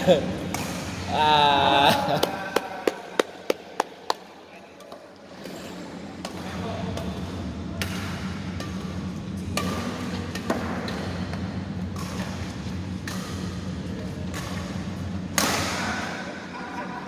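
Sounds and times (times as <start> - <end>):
steady low hum: 0.0 - 17.0
racket striking shuttlecock: 0.5 - 1.1, 7.8 - 16.0.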